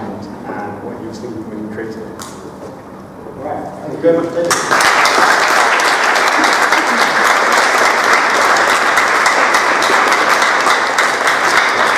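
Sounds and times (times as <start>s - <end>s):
audience applauding: 4.5s - 11.9s.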